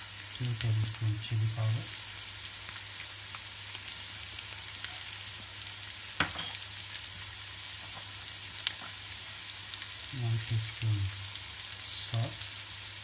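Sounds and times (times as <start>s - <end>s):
food sizzling in hot oil: 0.0s - 13.0s
oil crackles and pops: 0.0s - 13.0s.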